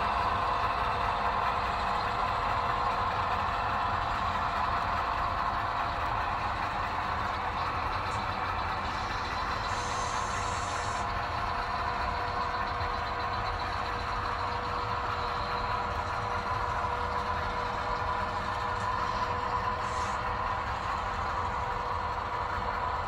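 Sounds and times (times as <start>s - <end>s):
model train wheels rumbling on rails: 0.0s - 23.0s.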